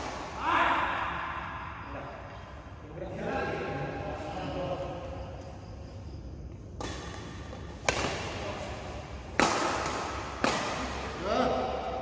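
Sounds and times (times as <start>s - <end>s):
racket hitting shuttlecock: 6.6s - 11.2s.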